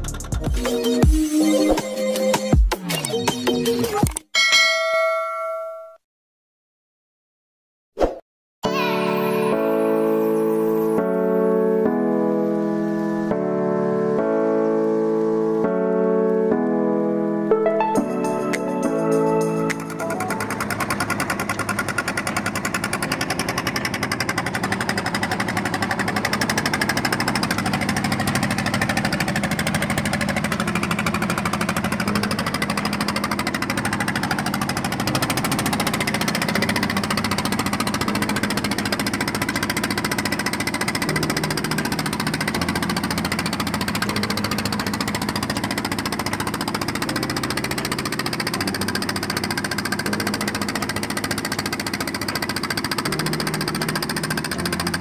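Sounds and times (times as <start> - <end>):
boat engine knocking: 18.5 - 55.0.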